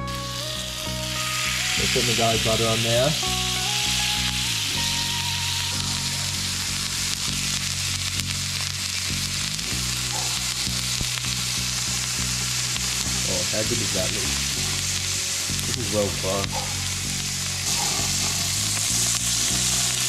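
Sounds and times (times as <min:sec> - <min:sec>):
background music with low notes: 0:00.0 - 0:20.0
lobsters sizzling on barbecue: 0:00.0 - 0:20.0.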